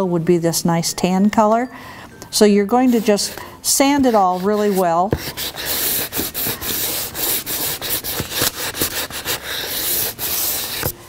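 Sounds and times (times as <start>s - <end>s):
sandpaper rubbing scratchy hiss: 4.0s - 10.9s.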